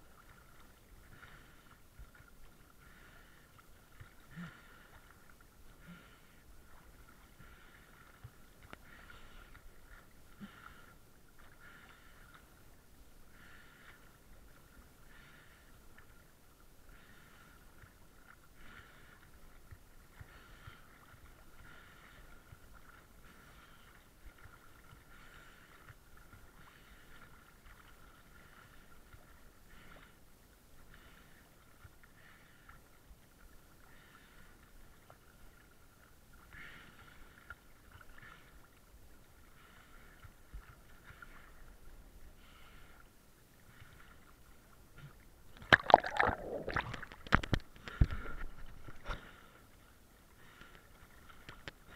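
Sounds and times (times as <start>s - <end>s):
water splashing: 45.1s - 49.6s.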